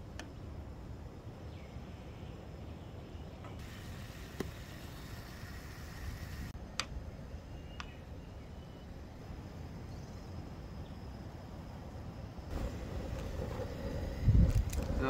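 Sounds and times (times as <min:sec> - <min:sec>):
gas burner hiss: 0:03.6 - 0:06.6, 0:12.5 - 0:15.0
gas camping stove rumble: 0:12.5 - 0:15.0.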